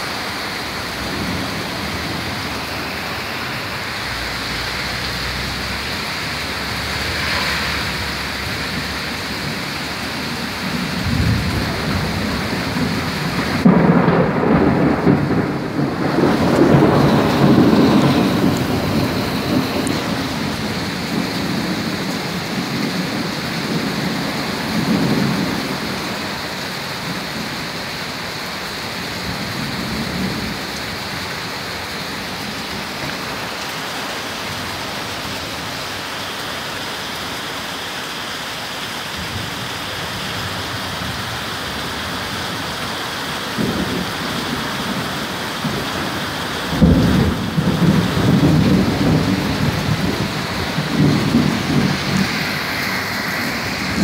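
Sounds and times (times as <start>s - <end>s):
thunder rumbling: 0.0s - 27.6s, 43.4s - 54.0s
rain hissing: 0.0s - 54.0s
loud thunderclap: 6.5s - 26.0s, 43.6s - 52.5s.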